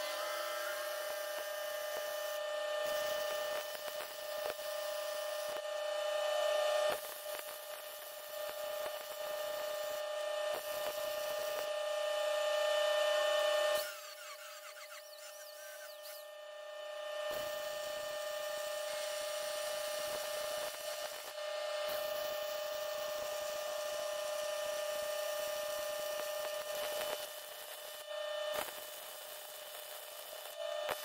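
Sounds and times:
welding arc crackling: 0:00.0 - 0:05.7, 0:06.9 - 0:16.4, 0:17.0 - 0:31.0
steady hum: 0:00.0 - 0:31.0
angle grinder spinning down: 0:13.7 - 0:16.3.

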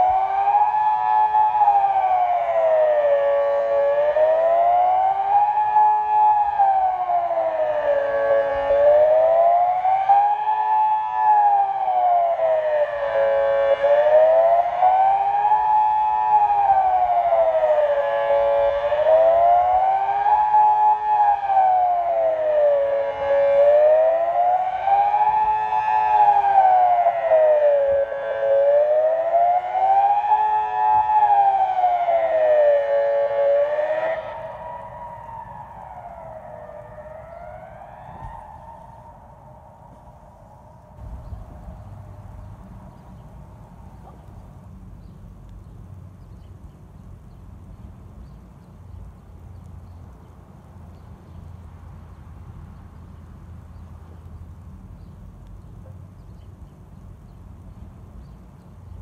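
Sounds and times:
wailing siren: 0:00.0 - 0:41.3.

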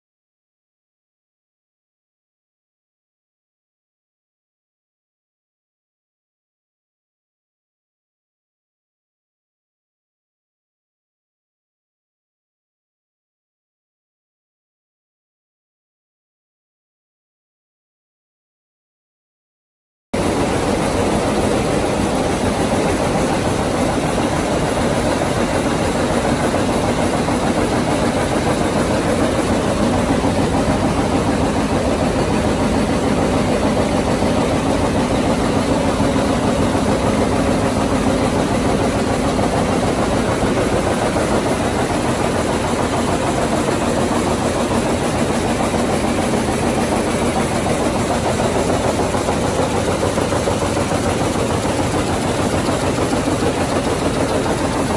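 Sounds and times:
loom running: 0:20.2 - 0:54.9.

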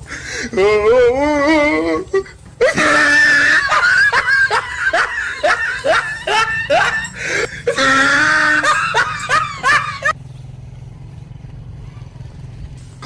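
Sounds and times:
low steady rumble: 0:00.0 - 0:13.0
person laughing: 0:00.1 - 0:10.2.

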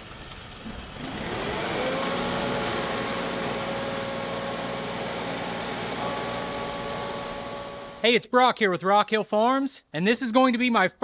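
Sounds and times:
tractor diesel engine revving: 0:00.0 - 0:08.0.

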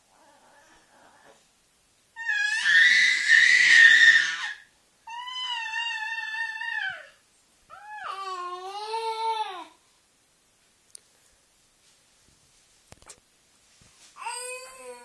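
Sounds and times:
infant squealing: 0:02.2 - 0:09.6.

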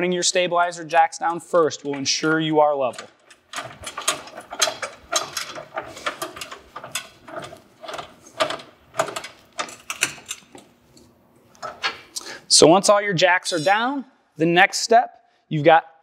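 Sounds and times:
crank clicking and rattling: 0:01.5 - 0:12.2.

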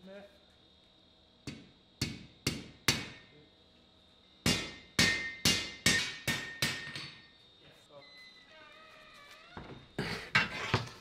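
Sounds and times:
hammer striking metal on anvil: 0:01.5 - 0:03.2, 0:04.4 - 0:07.3.

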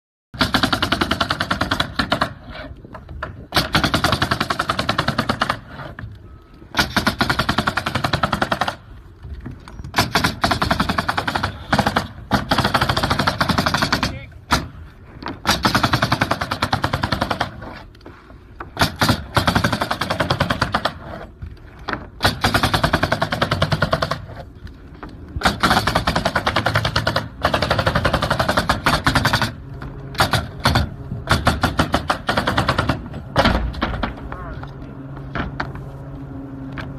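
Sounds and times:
pneumatic nailer firing nails: 0:00.4 - 0:06.0, 0:06.7 - 0:08.9, 0:09.8 - 0:17.8, 0:18.7 - 0:21.1, 0:21.9 - 0:24.4, 0:25.4 - 0:34.2.

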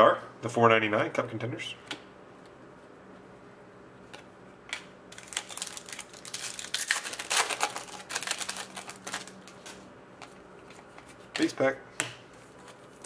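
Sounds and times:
foil wrapper crinkling: 0:05.1 - 0:09.8.

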